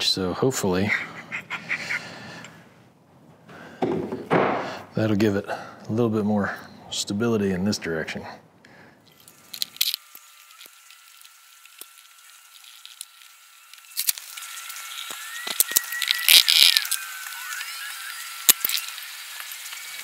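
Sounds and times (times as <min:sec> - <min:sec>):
hand tools and metal parts rattling: 0:09.0 - 0:10.8, 0:11.8 - 0:17.0.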